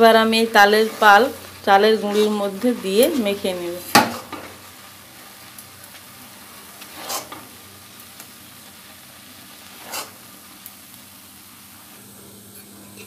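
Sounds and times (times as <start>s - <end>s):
fruit pulp sizzling in a pan: 0.0s - 13.0s
stirring swishes: 6.8s - 7.4s.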